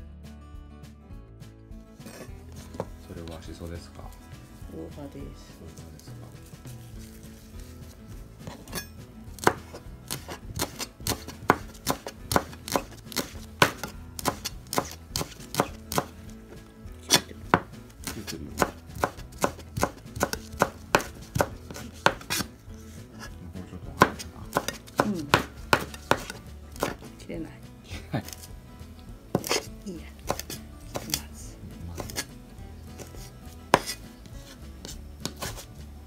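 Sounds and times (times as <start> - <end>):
knife chopping on plastic board: 2.0 - 3.4, 7.9 - 22.9, 23.9 - 27.1, 29.3 - 31.3, 32.0 - 32.3, 32.9 - 35.7.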